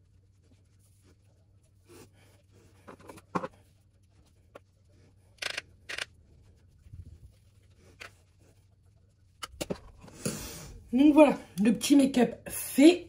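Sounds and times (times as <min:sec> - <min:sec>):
brush strokes on skin: 0:00.0 - 0:05.4, 0:06.2 - 0:09.4.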